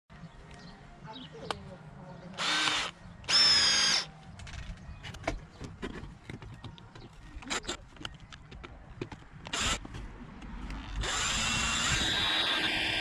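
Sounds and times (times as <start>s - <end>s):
cordless drill whirring: 2.4s - 4.1s, 9.4s - 9.8s, 10.7s - 13.0s
clicks of screws and plastic case: 4.3s - 10.8s.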